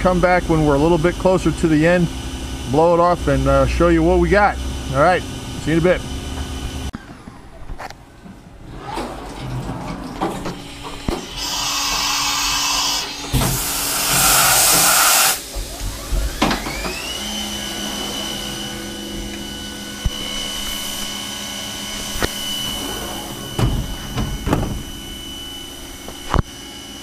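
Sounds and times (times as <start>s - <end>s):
low machine hum: 0.0s - 14.4s, 15.4s - 27.0s
loud hissing burst: 11.3s - 15.6s
milling spindle whine: 15.6s - 27.0s.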